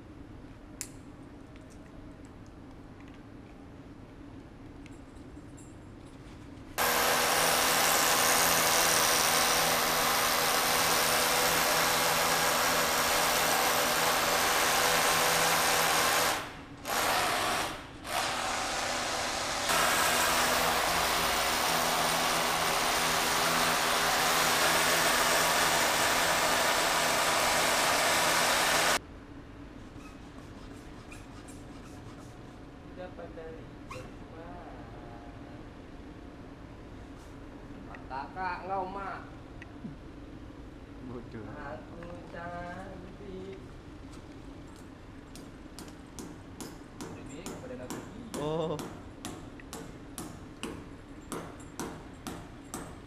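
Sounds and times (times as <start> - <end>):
rotary hammer drill boring: 6.8 - 29.0.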